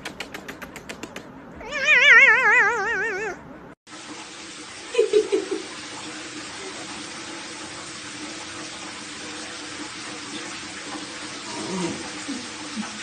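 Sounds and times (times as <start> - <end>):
water running into bathtub: 3.9 - 13.0.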